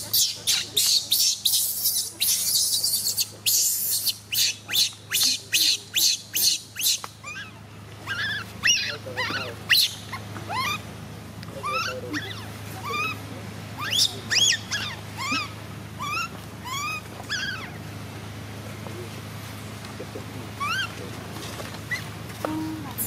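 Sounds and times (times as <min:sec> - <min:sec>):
baby monkey crying: 0:00.0 - 0:10.9, 0:11.6 - 0:17.8, 0:20.5 - 0:21.0.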